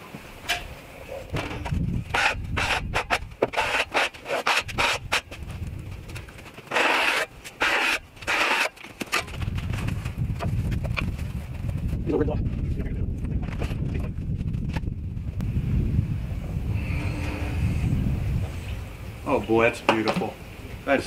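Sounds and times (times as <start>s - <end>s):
scraping strokes on wood: 1.5s - 5.4s, 6.2s - 9.3s.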